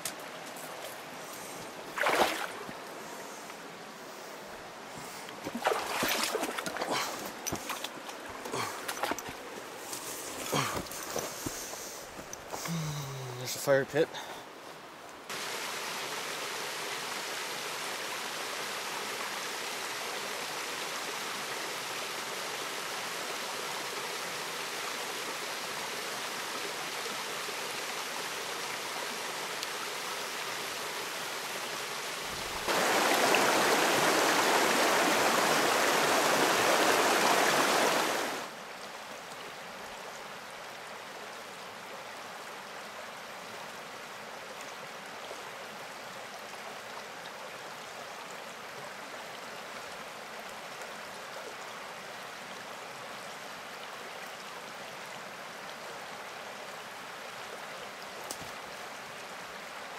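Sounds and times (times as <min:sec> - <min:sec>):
river rushing over rapids: 0:15.3 - 0:38.6.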